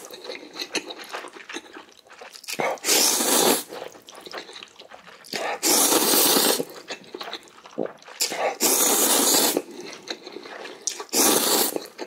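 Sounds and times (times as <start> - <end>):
wet mouth sounds: 0.0 - 12.0
person slurping noodles: 2.5 - 4.0, 5.2 - 12.0.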